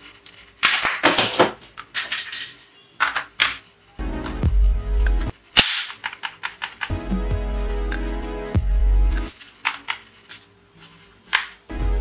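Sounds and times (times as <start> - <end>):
plastic toy guns clicking: 5.6 - 6.9.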